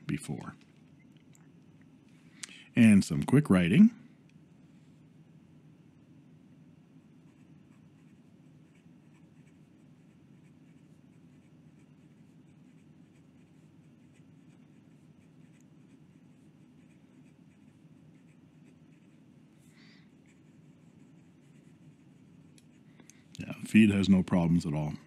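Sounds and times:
low steady hum: 0:00.0 - 0:25.0
pen nib scratching on paper: 0:07.2 - 0:19.3, 0:20.1 - 0:22.9.

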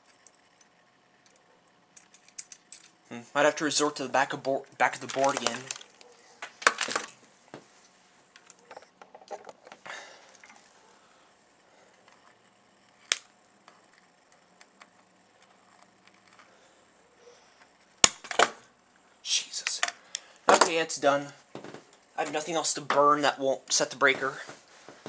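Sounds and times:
circuit board rustle and clatter: 0:00.0 - 0:03.0, 0:04.7 - 0:10.8.

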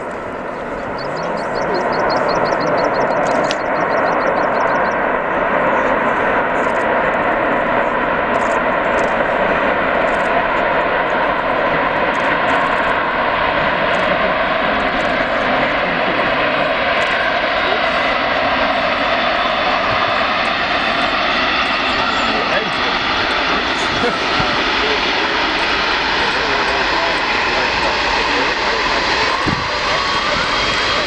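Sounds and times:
jet engines roaring: 0:00.0 - 0:31.0
rapid high chirping: 0:00.8 - 0:05.0.

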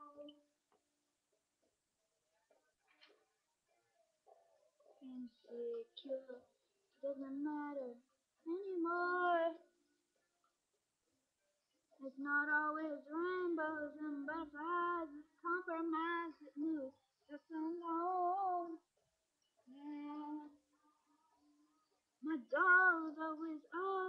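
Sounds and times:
high voice singing unaccompanied: 0:00.0 - 0:00.4, 0:05.0 - 0:06.4, 0:07.0 - 0:09.6, 0:12.0 - 0:18.8, 0:19.7 - 0:20.6, 0:22.2 - 0:24.0.

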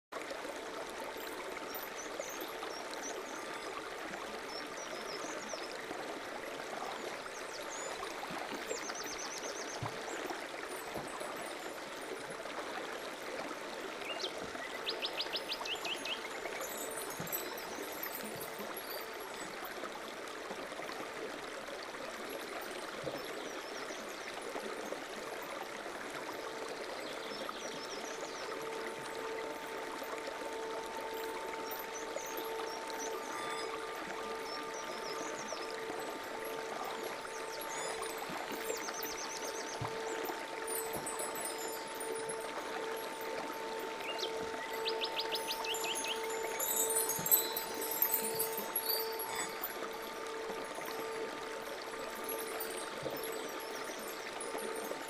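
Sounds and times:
running water: 0:00.0 - 0:55.0
birds chirping: 0:14.0 - 0:19.6, 0:26.3 - 0:55.0.

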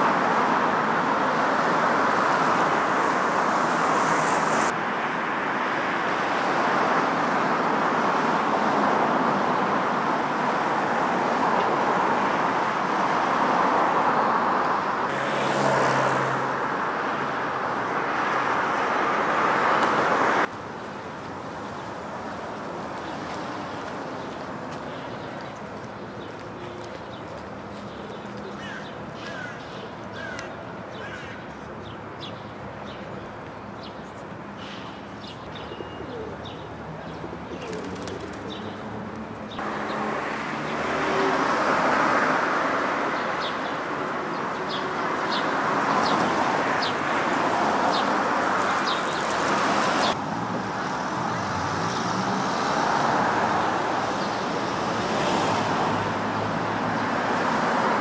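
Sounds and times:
road traffic passing cars: 0:00.0 - 0:58.0
birds chirping: 0:21.8 - 0:42.0.

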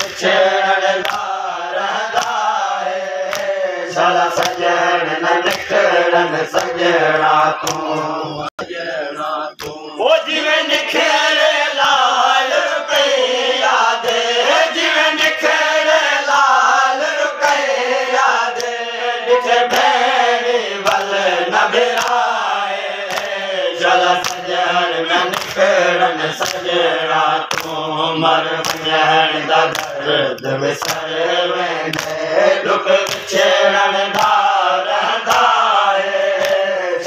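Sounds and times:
men chanting in unison: 0:00.0 - 0:37.0
chest-beating slaps: 0:01.0 - 0:03.6, 0:04.3 - 0:04.8, 0:05.4 - 0:05.9, 0:06.5 - 0:06.8, 0:07.6 - 0:08.2, 0:09.6 - 0:09.9, 0:23.1 - 0:23.4, 0:24.2 - 0:24.5, 0:25.3 - 0:25.7, 0:26.4 - 0:26.7, 0:27.5 - 0:27.8, 0:28.6 - 0:28.9, 0:30.8 - 0:31.1, 0:31.9 - 0:32.2, 0:33.0 - 0:33.4, 0:34.1 - 0:34.4, 0:35.2 - 0:35.6, 0:36.3 - 0:36.6.

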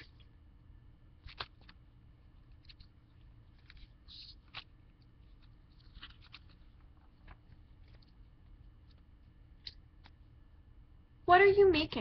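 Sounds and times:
low room hum: 0:00.0 - 0:12.0
book page rustles and clicks: 0:01.2 - 0:01.8, 0:02.5 - 0:08.2, 0:08.8 - 0:10.2.

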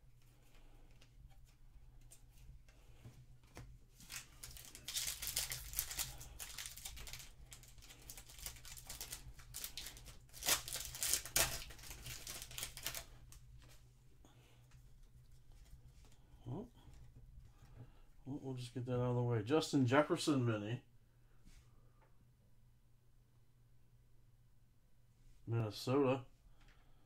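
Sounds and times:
foil wrapper tearing and crinkling: 0:04.1 - 0:13.2.

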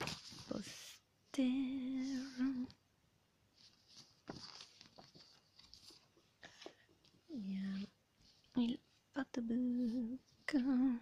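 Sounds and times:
paper and card rustling: 0:00.0 - 0:01.0, 0:03.5 - 0:09.0.

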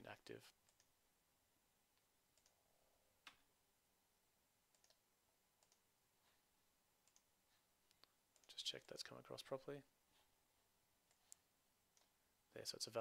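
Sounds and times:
computer mouse clicks: 0:00.7 - 0:00.9, 0:02.3 - 0:02.6, 0:04.7 - 0:05.0, 0:05.6 - 0:05.8, 0:07.0 - 0:07.3
keyboard clicks: 0:02.4 - 0:02.6, 0:04.7 - 0:05.0, 0:05.6 - 0:05.8, 0:07.0 - 0:07.3.

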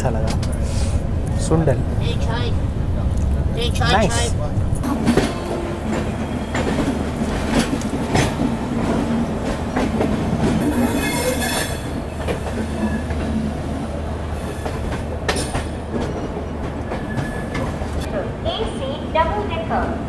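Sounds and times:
train coaches rumbling on track: 0:00.0 - 0:20.0
train wheel squeal: 0:05.2 - 0:07.0, 0:10.6 - 0:13.2, 0:16.9 - 0:17.7.

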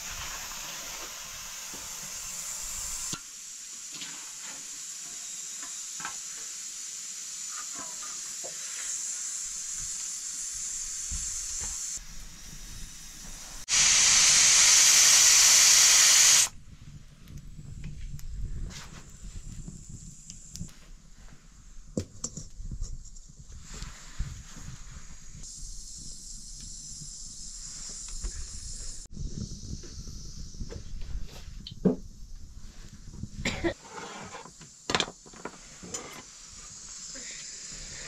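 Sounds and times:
food sizzling: 0:00.0 - 0:16.5
loud burst of hissing: 0:00.0 - 0:16.6, 0:24.2 - 0:31.0, 0:35.6 - 0:38.0.

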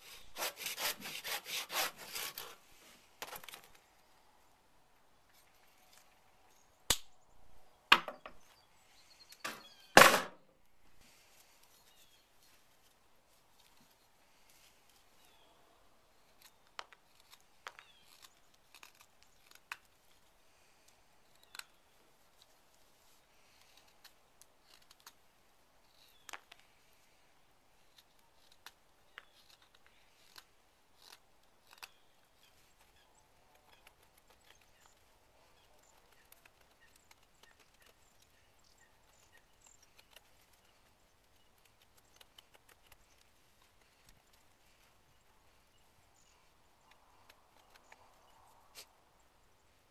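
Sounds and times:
knife carving wood: 0:00.0 - 0:03.7, 0:16.2 - 0:20.4, 0:23.4 - 0:26.8, 0:27.8 - 0:44.6.

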